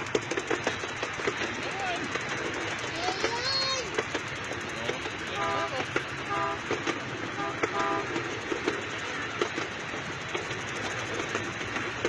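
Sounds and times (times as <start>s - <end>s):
clicks from the rails: 0.0s - 5.2s, 5.8s - 12.0s
train cars clattering on track: 0.0s - 12.0s
miniature train horn toots: 5.3s - 8.3s.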